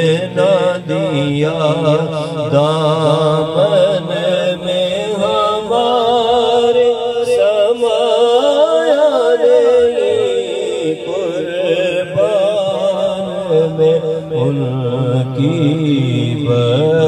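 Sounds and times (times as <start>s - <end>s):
man singing unaccompanied: 0.0s - 17.0s.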